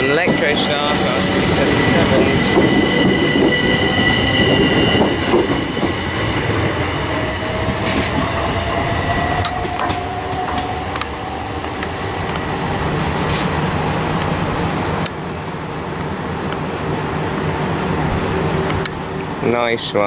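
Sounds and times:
wheel squeal: 0:00.0 - 0:11.5
train motor whine: 0:00.0 - 0:19.4
electric train passing: 0:00.0 - 0:20.0.

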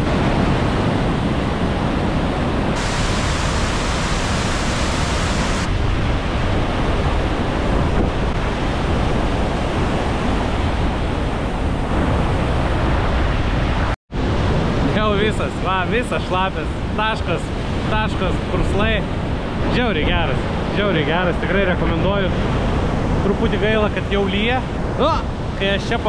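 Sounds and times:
waterfall roaring: 0:00.0 - 0:06.4.

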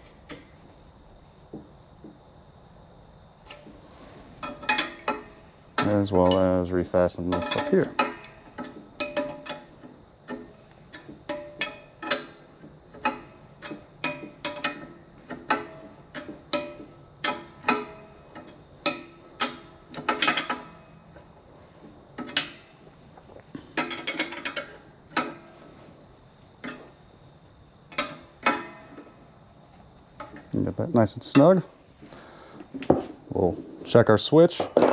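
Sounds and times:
wrench clinking on metal: 0:04.4 - 0:21.0.

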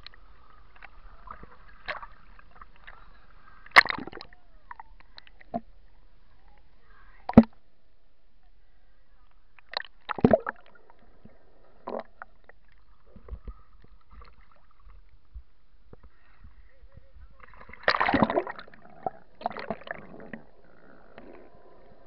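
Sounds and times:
underwater knocks and gurgles: 0:09.6 - 0:16.1, 0:17.2 - 0:21.4.

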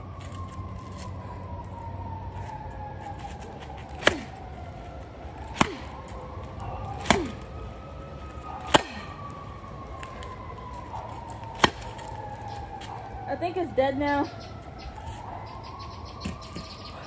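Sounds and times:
baseball bat whacking pumpkin: 0:03.9 - 0:04.4, 0:05.5 - 0:06.0, 0:07.0 - 0:07.4, 0:08.6 - 0:09.1, 0:11.6 - 0:12.0.

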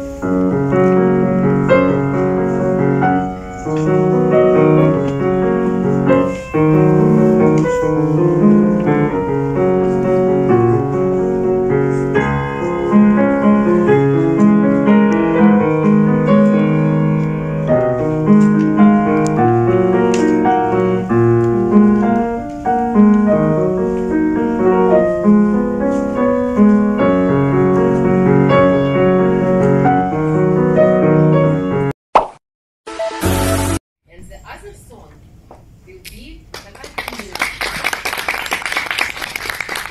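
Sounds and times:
solo grand piano: 0:00.0 - 0:31.9.

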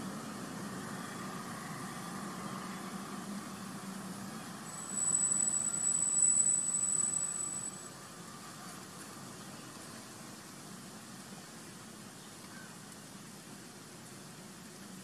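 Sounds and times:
high-pitched whine: 0:04.5 - 0:08.0.

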